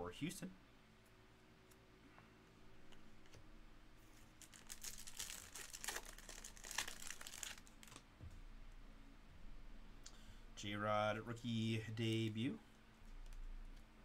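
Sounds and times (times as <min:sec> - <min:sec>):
foil wrapper crinkling: 0:04.3 - 0:08.0.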